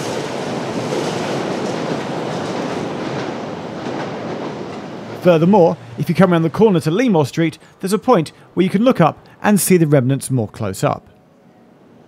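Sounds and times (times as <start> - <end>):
train wheels clattering on rails: 0.0 - 6.8.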